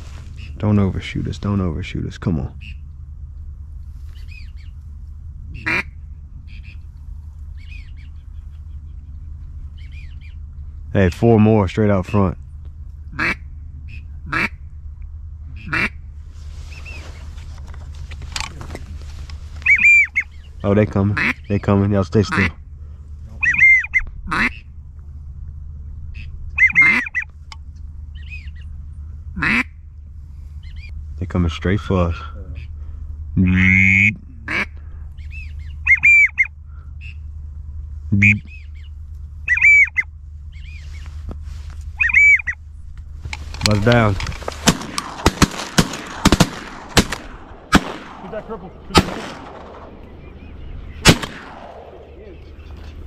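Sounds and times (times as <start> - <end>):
steady low rumble: 0.0 - 53.0
duck quacking: 5.5 - 6.8, 13.1 - 14.6, 15.5 - 16.0, 19.6 - 20.3, 21.0 - 21.5, 22.2 - 22.6, 23.4 - 24.7, 26.2 - 27.3, 29.4 - 29.8, 33.4 - 34.8, 35.8 - 37.2, 38.2 - 38.6, 39.5 - 40.1, 42.0 - 42.6.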